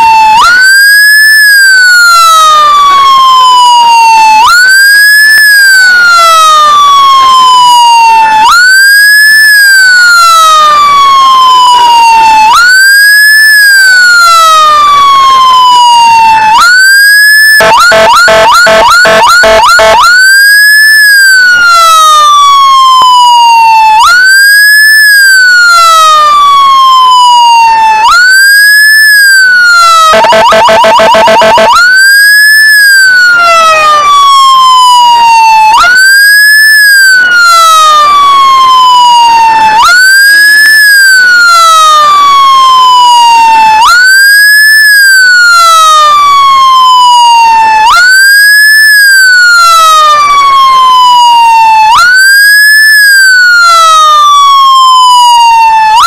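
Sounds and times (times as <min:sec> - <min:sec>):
emergency siren wailing: 0:00.0 - 0:56.0
pulsing electronic horn blast: 0:15.1 - 0:21.3, 0:28.3 - 0:33.0.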